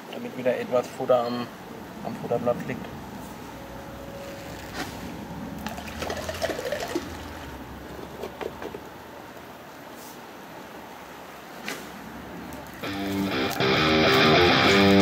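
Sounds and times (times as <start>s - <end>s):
water sloshing in bucket: 5.6s - 8.4s.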